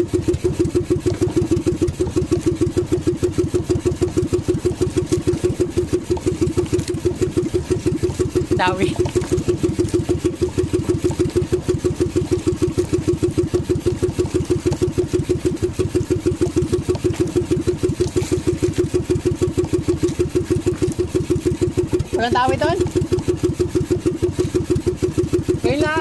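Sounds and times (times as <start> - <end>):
boat engine putting: 0.0 - 26.0.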